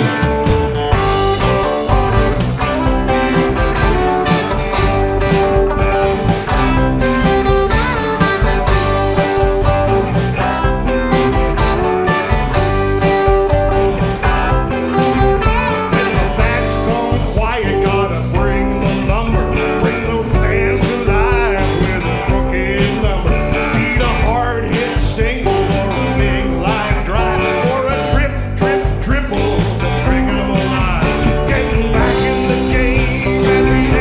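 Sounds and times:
country-rock band playing: 0.0 - 34.0
person singing lead vocal: 15.0 - 34.0.

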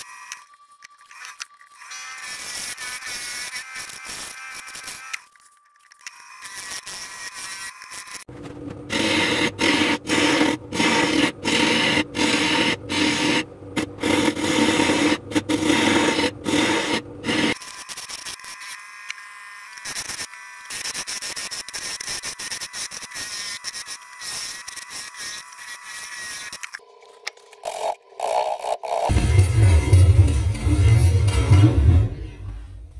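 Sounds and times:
wood lathe gouge cutting: 8.9 - 17.6.

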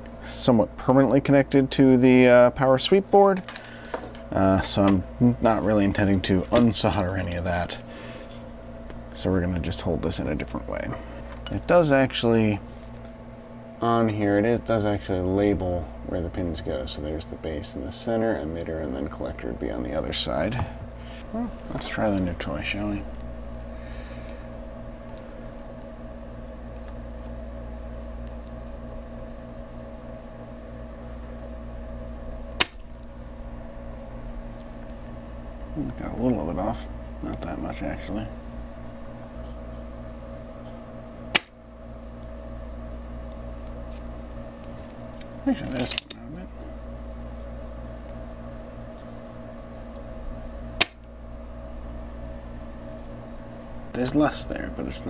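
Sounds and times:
low electrical hum: 0.0 - 55.0
solder sucker snap: 32.5 - 32.9, 41.3 - 41.6, 50.8 - 51.1.

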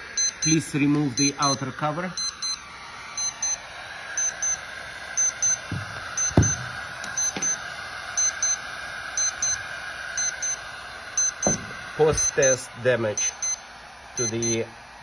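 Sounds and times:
thermometer beeping in pairs: 0.0 - 2.6, 3.2 - 3.6, 4.2 - 4.6, 5.2 - 7.6, 8.2 - 8.6, 9.2 - 9.6, 10.2 - 10.6, 11.2 - 12.6, 13.2 - 13.6, 14.2 - 14.6
steady hiss: 0.0 - 15.0
knocks on plastic cover: 5.7 - 7.4, 11.4 - 11.8.

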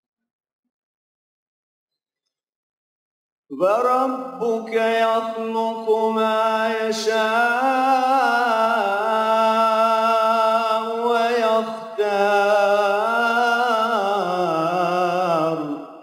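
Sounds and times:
man reciting melodically: 3.5 - 16.0.

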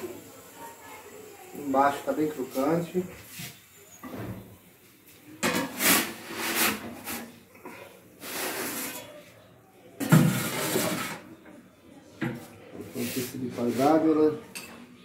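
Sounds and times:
metal pizza peel scraping: 5.4 - 7.4, 8.2 - 9.1, 10.3 - 11.3.

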